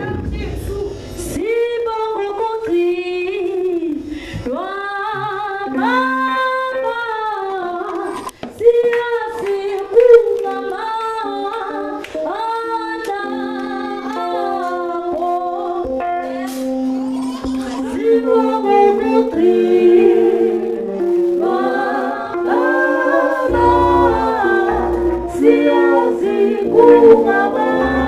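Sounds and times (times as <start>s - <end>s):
voices singing worship song: 0.0s - 16.8s, 17.4s - 28.0s
keyboard accompaniment: 9.4s - 28.0s.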